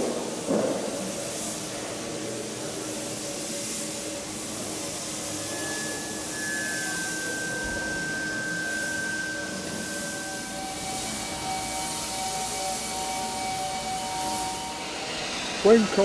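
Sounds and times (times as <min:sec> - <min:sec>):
paint spray gun hissing: 0:00.0 - 0:16.0
thin steady whistle: 0:03.5 - 0:16.0.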